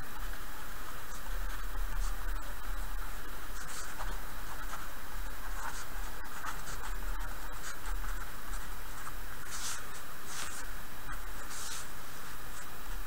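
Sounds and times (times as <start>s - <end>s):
steady low hum: 0.0s - 13.0s
pen scratching on paper: 3.5s - 12.7s.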